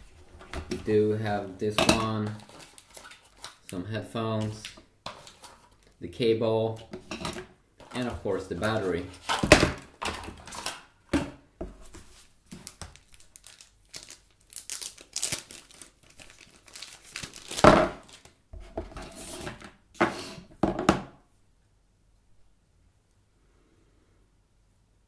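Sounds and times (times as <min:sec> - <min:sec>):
plastic bag crinkling and tearing: 0:02.2 - 0:03.8, 0:12.5 - 0:18.4.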